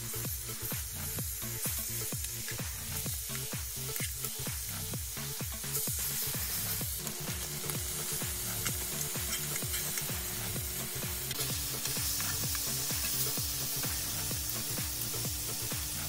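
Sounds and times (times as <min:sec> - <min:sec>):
chicken sizzling in hot oil: 0:00.0 - 0:16.0
metal tongs turning meat: 0:01.8 - 0:04.4, 0:05.6 - 0:14.7.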